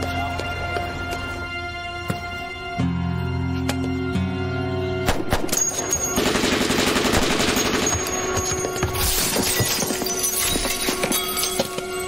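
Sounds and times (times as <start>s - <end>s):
glass shattering: 8.0s - 12.0s.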